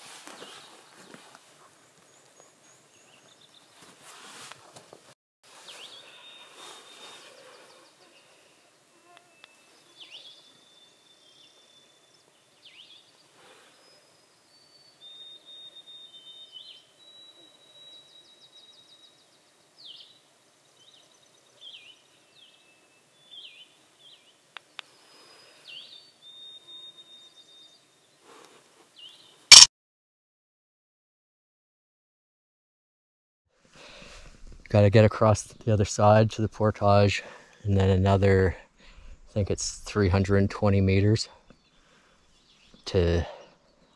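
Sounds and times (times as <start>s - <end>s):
small birds singing: 0.4s - 3.9s, 5.6s - 28.3s, 28.9s - 29.6s, 40.8s - 43.9s.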